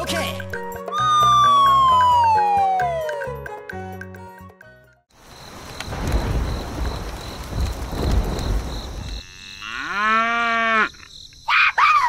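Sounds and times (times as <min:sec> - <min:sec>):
rain falling: 0:05.2 - 0:09.2
cow mooing: 0:09.2 - 0:10.9.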